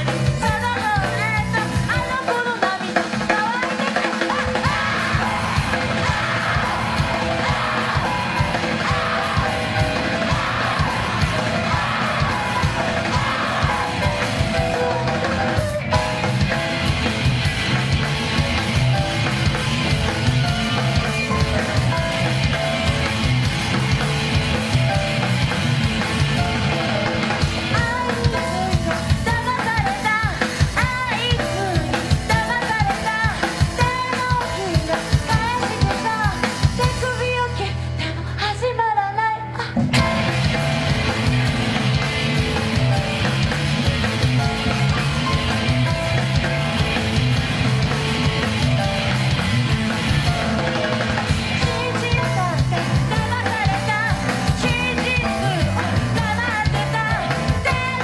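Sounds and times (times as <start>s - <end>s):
rock band playing: 0.0s - 58.0s
woman singing and yelling: 0.4s - 14.3s, 27.7s - 37.7s, 51.6s - 58.0s.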